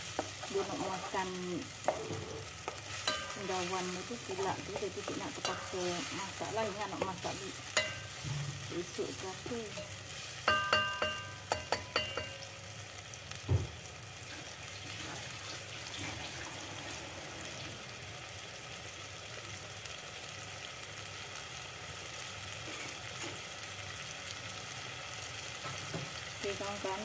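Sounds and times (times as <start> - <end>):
paste sizzling in oil: 0.0 - 27.0
spatula knocking against pot: 10.5 - 12.4.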